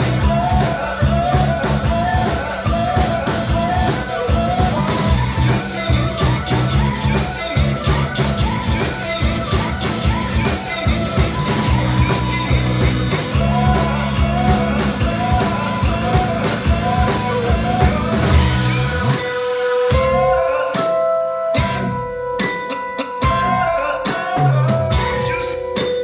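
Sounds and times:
held keyboard notes: 0.0 - 19.3
live rock band playing: 0.0 - 26.0.

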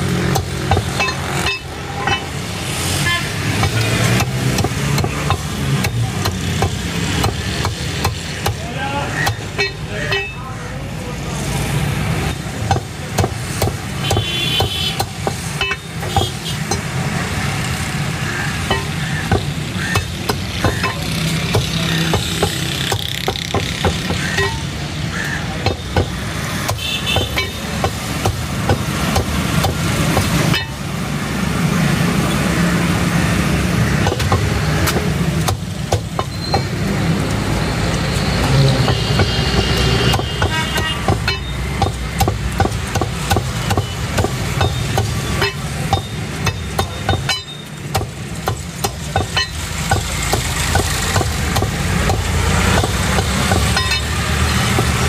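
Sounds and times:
low hum of traffic: 0.0 - 55.0
cleaver chopping on wooden block: 0.3 - 1.6, 3.5 - 9.7, 12.6 - 16.9, 18.6 - 24.6, 25.5 - 30.7, 34.0 - 36.8, 38.4 - 55.0.

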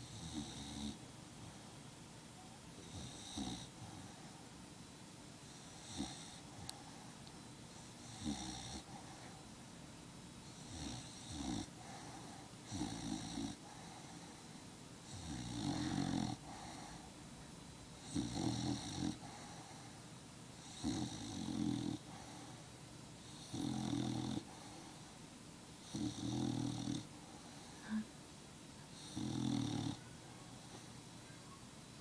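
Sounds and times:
dog snoring: 0.0 - 1.0, 2.8 - 4.2, 5.4 - 7.0, 7.8 - 9.4, 10.5 - 17.1, 18.0 - 20.0, 20.6 - 25.2, 25.8 - 28.0, 28.9 - 30.1.

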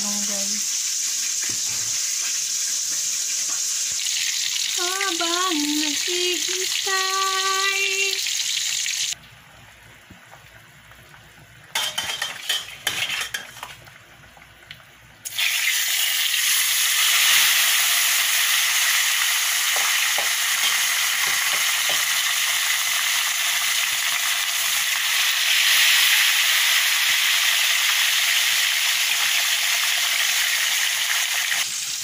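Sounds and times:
fish sizzling in hot oil: 0.0 - 9.2, 11.7 - 14.0, 15.2 - 32.0.

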